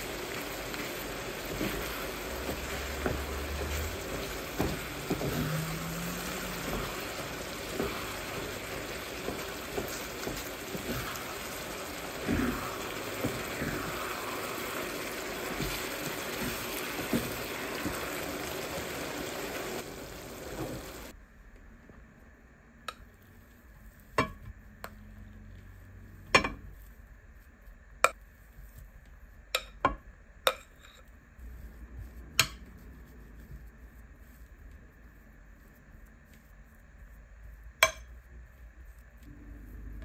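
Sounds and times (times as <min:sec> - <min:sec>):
meat sizzling in a frying pan: 0:00.0 - 0:21.1
wooden spatula stirring: 0:00.0 - 0:21.2, 0:22.9 - 0:29.8, 0:30.4 - 0:40.0.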